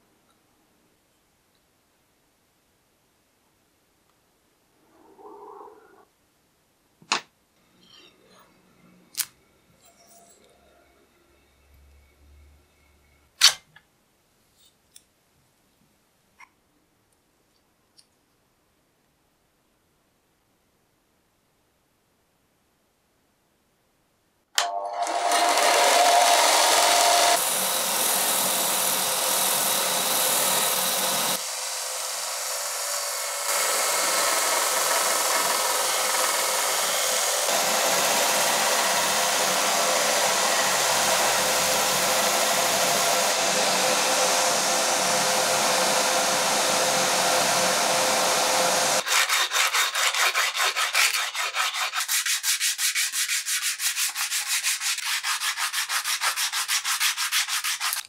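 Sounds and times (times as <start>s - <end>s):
belt sander hiss: 25.5s - 49.0s
hand sanding strokes: 25.9s - 44.2s, 49.0s - 58.0s.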